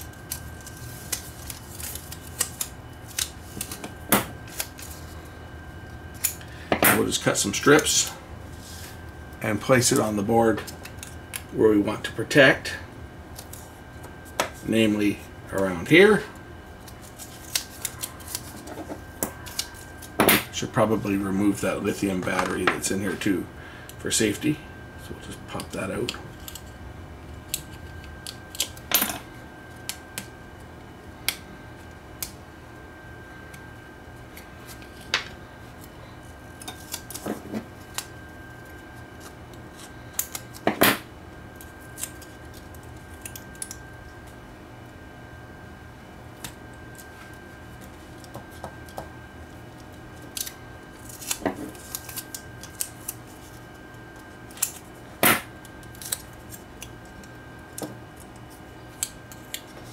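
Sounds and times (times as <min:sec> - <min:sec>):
foil tape snipping and crinkling: 0:00.0 - 0:05.3, 0:09.8 - 0:11.5, 0:13.3 - 0:14.6, 0:16.8 - 0:20.2, 0:25.5 - 0:26.8, 0:27.4 - 0:28.9, 0:33.5 - 0:40.8, 0:41.5 - 0:44.4, 0:46.3 - 0:59.9.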